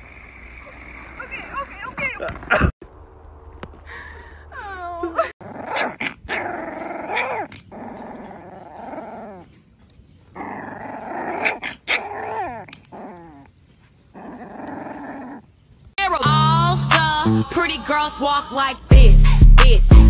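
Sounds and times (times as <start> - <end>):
puppy yelping: 5.4 - 9.6, 10.2 - 15.6
puppy growling: 5.4 - 16.0.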